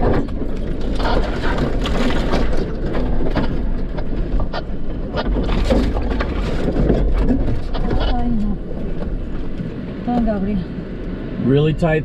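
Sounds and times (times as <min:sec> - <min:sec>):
clicks knocks and rattles: 0:00.0 - 0:08.3
vehicle engine and tyres rumbling: 0:00.0 - 0:12.0.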